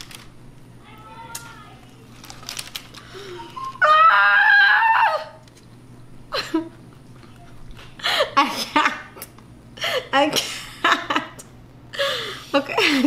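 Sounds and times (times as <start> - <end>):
woman squealing: 3.7 - 5.4.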